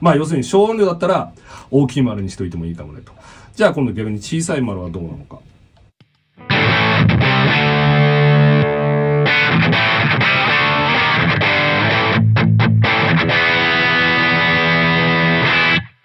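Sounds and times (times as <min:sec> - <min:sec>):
distorted electric guitar: 0:06.2 - 0:16.0.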